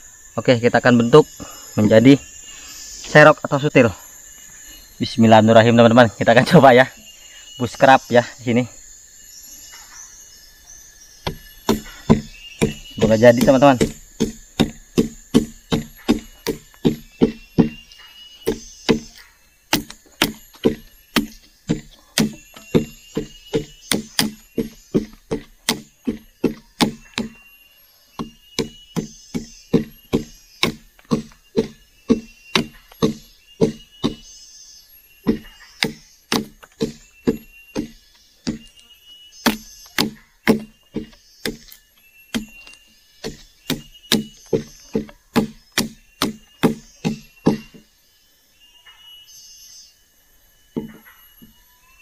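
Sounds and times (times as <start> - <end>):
machete chopping wood: 11.2 - 17.8, 18.4 - 27.4, 28.2 - 34.3, 35.2 - 38.8, 39.4 - 47.8.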